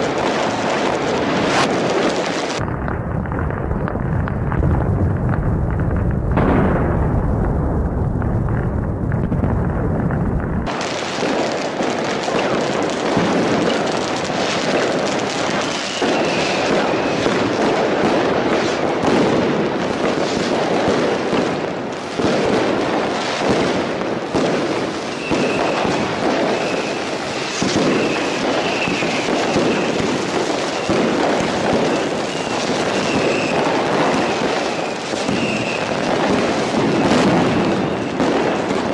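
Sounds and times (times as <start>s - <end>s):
firework whistles: 0.0s - 2.6s, 10.7s - 20.6s, 24.4s - 38.9s
fireworks crackling bangs: 0.0s - 38.9s
heavy low booms: 2.6s - 10.7s.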